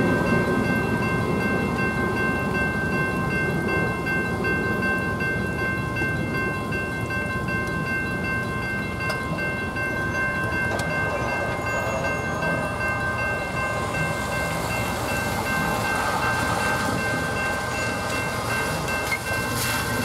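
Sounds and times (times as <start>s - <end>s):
low train rumble: 0.0s - 20.0s
railroad crossing bell ringing: 0.0s - 20.0s
wet road noise hiss: 13.4s - 20.0s
car tyres swishing on wet pavement: 14.6s - 20.0s.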